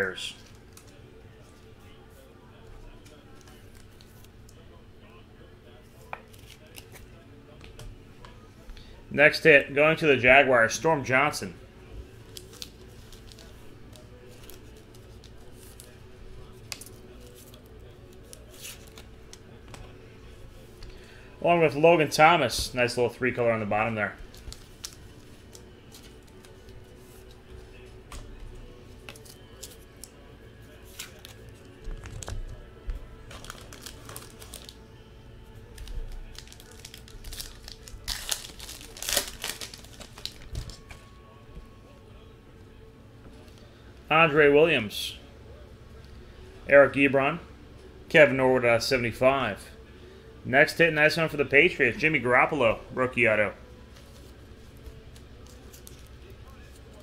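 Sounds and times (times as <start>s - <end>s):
wrapper tearing and crinkling: 12.3s - 13.5s, 24.3s - 25.6s, 33.3s - 34.8s, 35.7s - 40.8s.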